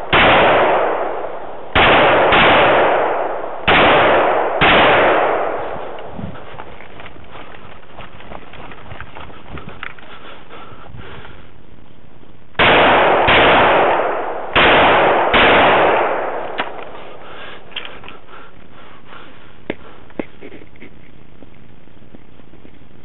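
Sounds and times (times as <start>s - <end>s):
rifle shots: 0.0s - 6.2s, 12.6s - 17.2s.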